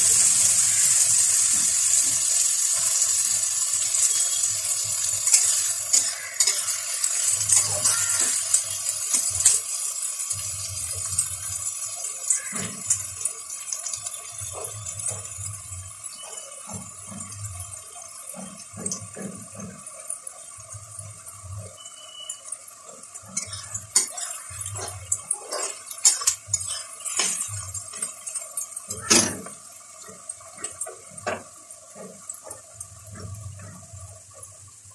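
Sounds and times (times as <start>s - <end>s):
onions sizzling in oil: 0.0s - 34.9s
spatula scraping a pan: 0.6s - 9.8s, 21.7s - 32.6s.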